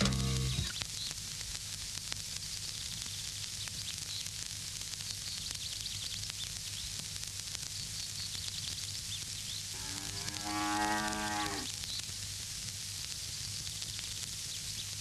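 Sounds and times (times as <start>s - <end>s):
film soundtrack hum and hiss: 0.0s - 15.0s
low moo-like call: 9.7s - 11.8s.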